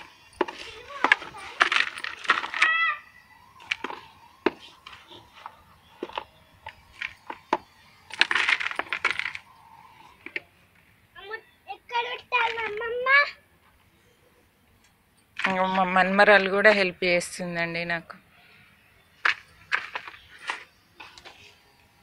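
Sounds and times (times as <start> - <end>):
bangles clinking: 0.0 - 10.1.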